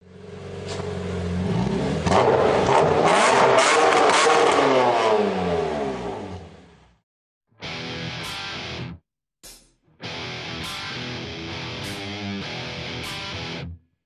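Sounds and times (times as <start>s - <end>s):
car engine revving: 0.2s - 6.8s.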